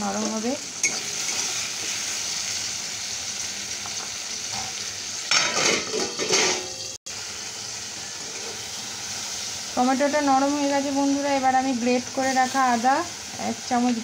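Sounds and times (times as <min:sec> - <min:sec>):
tomatoes sizzling in oil: 0:00.0 - 0:14.0
metal lid clattering: 0:05.3 - 0:06.9.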